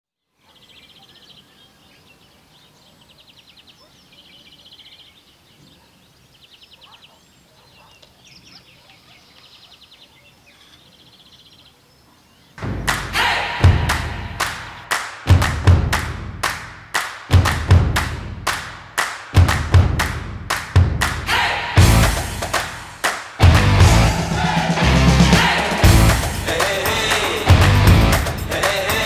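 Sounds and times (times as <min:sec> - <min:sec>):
faint outdoor ambience: 0:00.2 - 0:29.0
percussive drum hits: 0:12.6 - 0:29.0.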